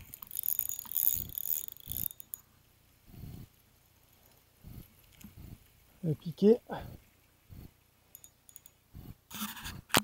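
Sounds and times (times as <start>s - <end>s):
fishing reel handling rustle: 0.0s - 2.5s.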